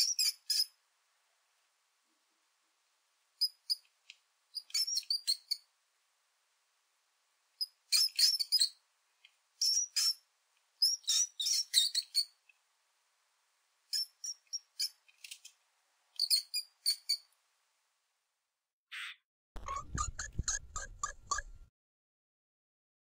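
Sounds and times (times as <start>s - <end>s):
mouse squeaks: 0.0s - 0.8s, 3.4s - 3.8s, 4.5s - 5.7s, 7.6s - 8.8s, 9.6s - 10.2s, 10.8s - 12.4s, 13.9s - 15.6s, 16.2s - 17.3s, 18.9s - 21.6s.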